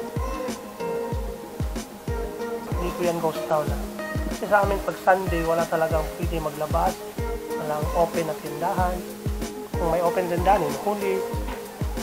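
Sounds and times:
music with steady beat: 0:00.0 - 0:12.0
deep kick drum: 0:01.2 - 0:03.0, 0:03.7 - 0:08.0, 0:08.8 - 0:10.6, 0:11.4 - 0:12.0.

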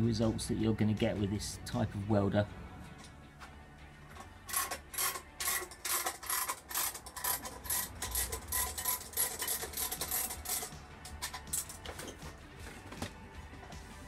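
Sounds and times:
hand tool rasping back and forth: 0:04.1 - 0:12.2.

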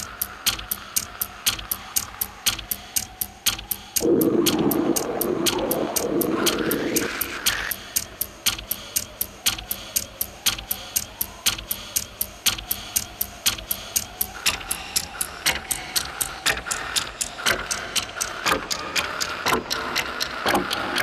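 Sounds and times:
faint wavering hum: 0:00.0 - 0:09.1
clock ticking: 0:00.0 - 0:21.0.

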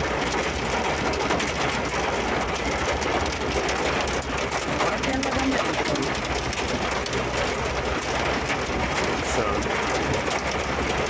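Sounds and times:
heavy rain on vehicle roof: 0:00.0 - 0:11.0
truck driving rumble: 0:00.0 - 0:11.0.

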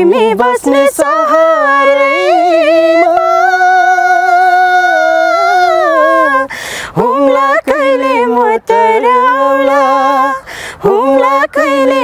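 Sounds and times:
person singing long note: 0:01.4 - 0:07.4.

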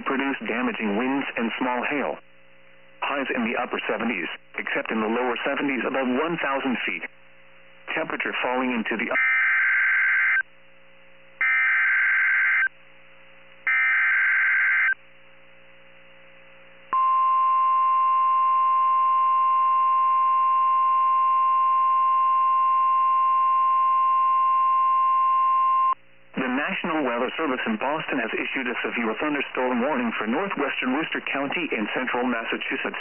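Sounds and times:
steady warning alarm tone: 0:09.2 - 0:10.4, 0:11.4 - 0:12.7, 0:13.7 - 0:15.0.

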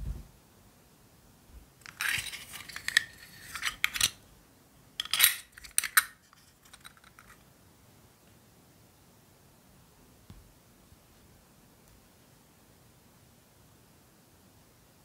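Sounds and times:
plastic parts clicking and scraping: 0:01.8 - 0:04.2, 0:05.0 - 0:07.4.

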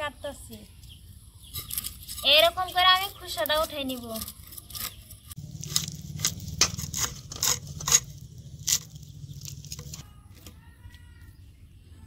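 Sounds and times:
blade scraping fish scales: 0:01.5 - 0:10.0.

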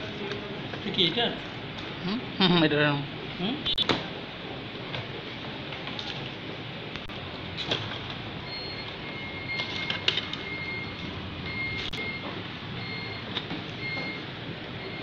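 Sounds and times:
steady noisy background: 0:00.0 - 0:15.0.

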